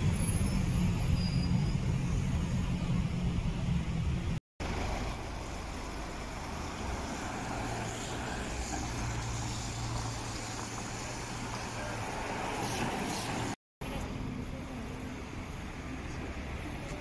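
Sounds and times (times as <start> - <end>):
cars passing slowly: 0.0 - 17.0
road noise: 0.0 - 17.0.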